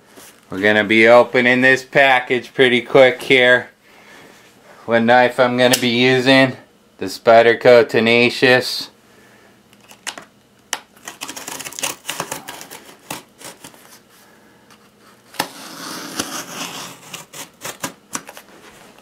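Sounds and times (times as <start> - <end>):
knife cutting packing tape: 11.0 - 13.8, 15.3 - 18.5.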